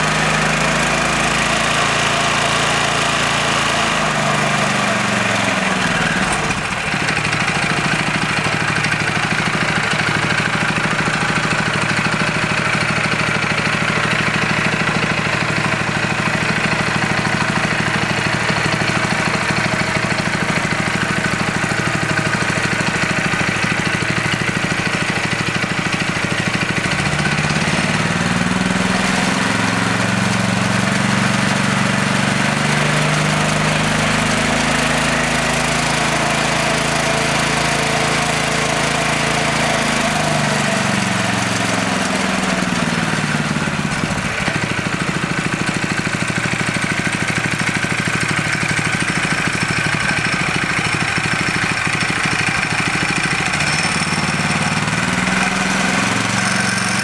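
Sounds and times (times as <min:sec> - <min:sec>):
small engine running: 0:00.0 - 0:57.0.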